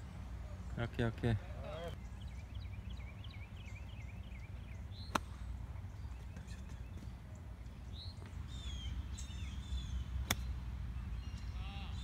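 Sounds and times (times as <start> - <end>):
golf club striking ball: 10.2 - 10.5.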